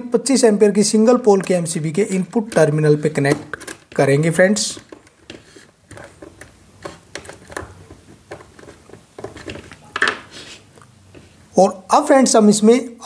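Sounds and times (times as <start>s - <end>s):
screwdriver clicks and scrapes: 4.8s - 9.8s.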